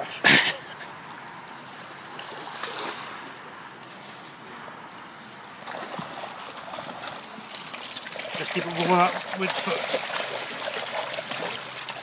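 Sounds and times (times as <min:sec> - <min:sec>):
light water splashes: 0:00.9 - 0:12.0
running water rushing: 0:05.3 - 0:12.0.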